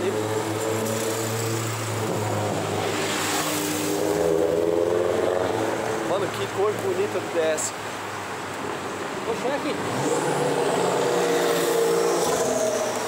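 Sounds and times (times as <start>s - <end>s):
car engines running: 0.0s - 13.0s
car passing close: 0.1s - 6.5s, 9.6s - 13.0s.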